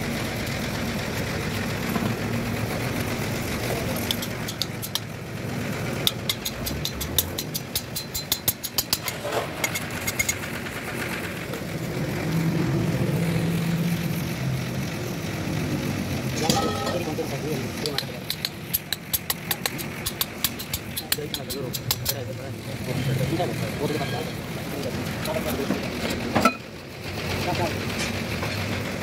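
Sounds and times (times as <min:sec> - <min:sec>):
engine hum: 0:00.0 - 0:29.0
hammer tapping metal: 0:04.1 - 0:05.1, 0:06.0 - 0:10.4, 0:16.4 - 0:17.2, 0:17.8 - 0:22.3.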